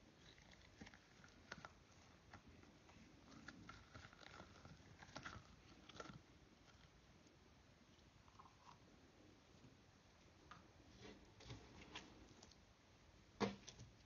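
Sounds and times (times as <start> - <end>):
slime clicking and crackling: 0.2 - 6.9.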